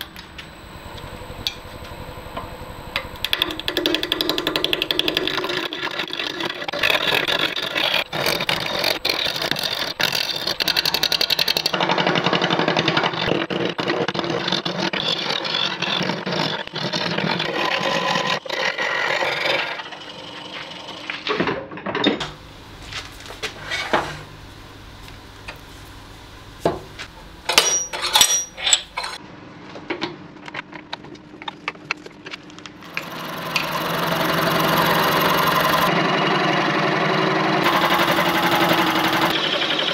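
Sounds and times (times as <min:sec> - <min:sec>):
lathe running up: 0:00.0 - 0:12.1, 0:32.8 - 0:39.9
lathe gouge scraping wood: 0:03.2 - 0:11.7, 0:37.6 - 0:39.3.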